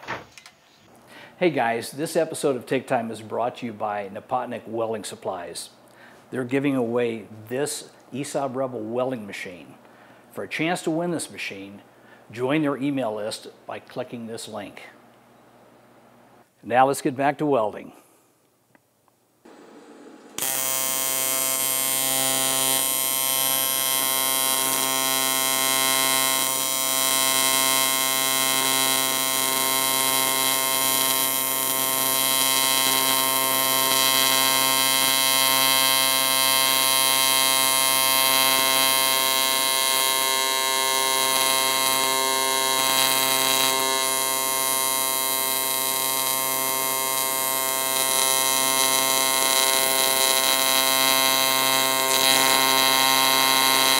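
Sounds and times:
welding arc buzzing: 0:19.5 - 0:53.9.

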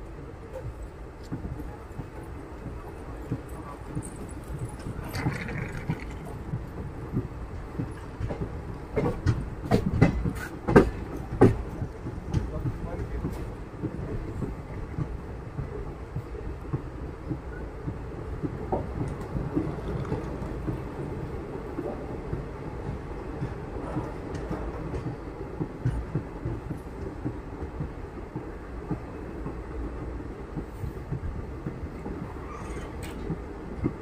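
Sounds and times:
train wheels rumbling on rails: 0:00.0 - 0:34.0
rattles and clicks: 0:03.4 - 0:11.6.

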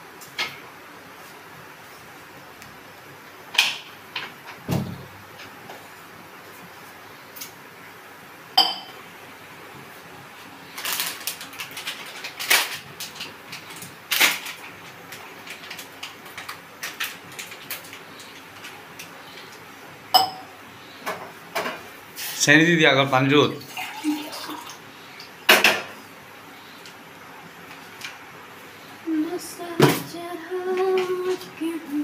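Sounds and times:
spoon clinking on saucepan: 0:08.6 - 0:09.0, 0:20.2 - 0:20.4
gas burner hiss: 0:22.0 - 0:22.6.

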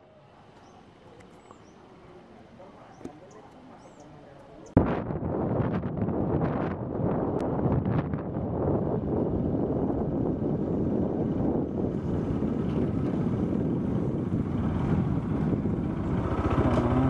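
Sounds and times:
wind rumble on microphone: 0:04.6 - 0:17.0
motorcycle engine running: 0:10.2 - 0:17.0.

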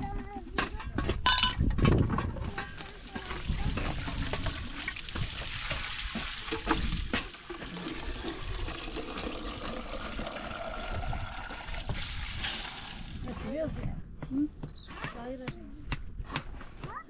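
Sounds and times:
metal knocking against pot: 0:00.6 - 0:05.8
water sloshing in a pot: 0:01.3 - 0:13.3
water spilling onto gravel: 0:02.8 - 0:13.3.

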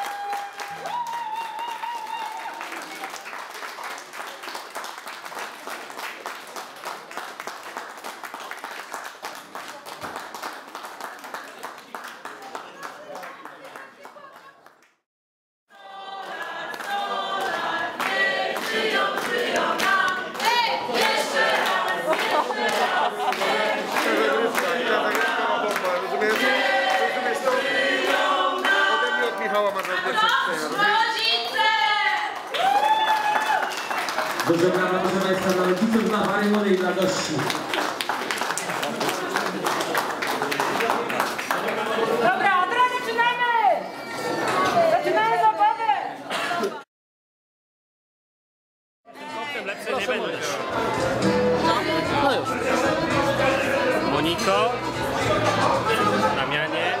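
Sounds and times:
crowd applauding: 0:00.0 - 0:15.0, 0:15.8 - 0:45.2
group of people singing: 0:15.7 - 0:30.3, 0:50.7 - 0:56.4.

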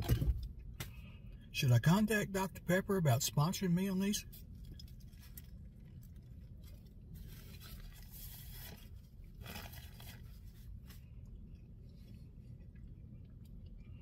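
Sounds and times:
faint low rumble: 0:00.0 - 0:14.0
paper rustling: 0:06.6 - 0:11.0.

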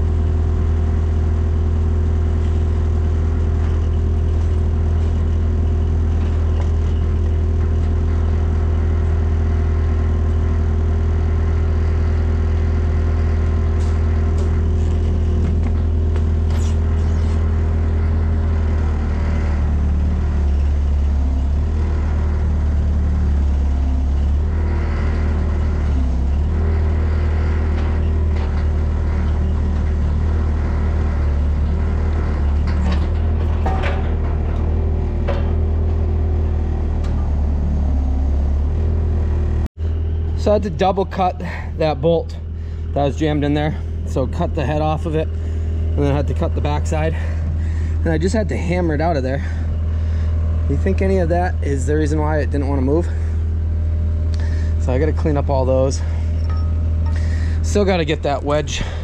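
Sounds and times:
diesel engine running: 0:00.0 - 0:59.0
metal knocks: 0:32.6 - 0:37.4.

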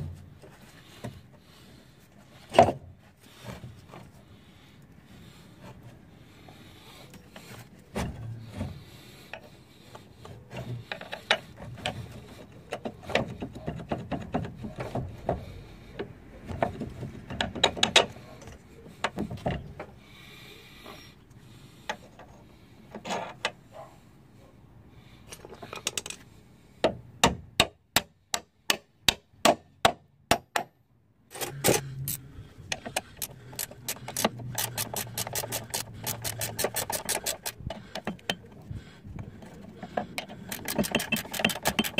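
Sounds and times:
ratchet wrench clicking: 0:31.3 - 0:32.2, 0:33.0 - 0:38.3, 0:40.4 - 0:41.9
metallic clicks and knocks: 0:31.3 - 0:41.9.

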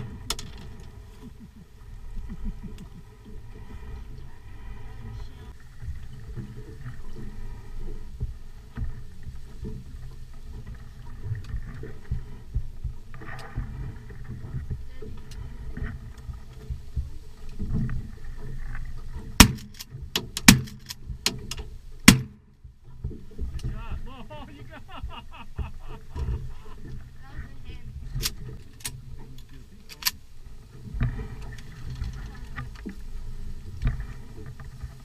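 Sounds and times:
low uneven rumble: 0:00.0 - 0:35.0
shotgun shots: 0:19.4 - 0:19.8, 0:22.1 - 0:22.4
faint cracks: 0:28.0 - 0:35.0.

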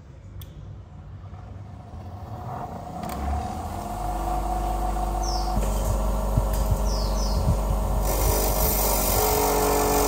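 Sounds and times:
bench grinder motor hum: 0:06.9 - 0:10.0.

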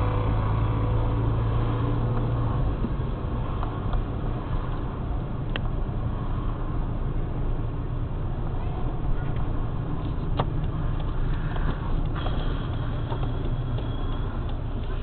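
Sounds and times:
car engine running: 0:00.0 - 0:15.0
tyre and road noise: 0:00.0 - 0:15.0.

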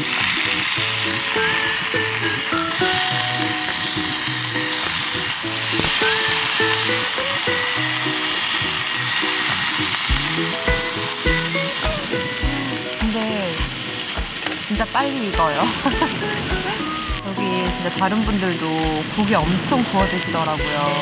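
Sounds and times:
background music with melody: 0:00.0 - 0:21.0
pork sizzling in frying pan: 0:00.0 - 0:21.0
soft beat: 0:10.1 - 0:20.8.

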